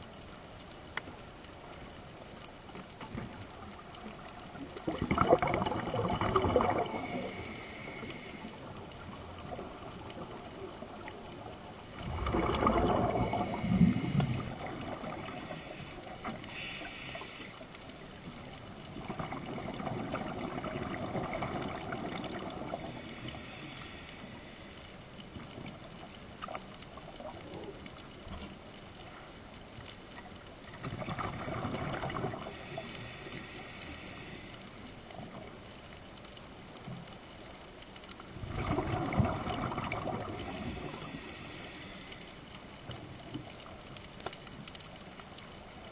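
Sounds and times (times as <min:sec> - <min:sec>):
underwater water noise: 0:00.0 - 0:45.9
exhale bubbles rushing: 0:04.8 - 0:08.1, 0:12.0 - 0:15.9, 0:38.5 - 0:41.2
scuba regulator breathing: 0:06.6 - 0:08.8, 0:12.4 - 0:17.9, 0:22.7 - 0:24.9, 0:32.4 - 0:34.8, 0:40.3 - 0:42.4.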